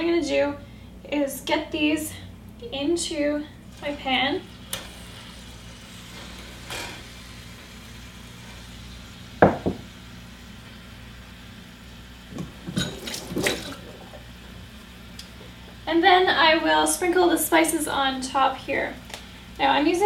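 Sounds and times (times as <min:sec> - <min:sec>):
glass pot knocking down: 0:09.4 - 0:09.8
tap water splashing into sink: 0:12.3 - 0:14.2.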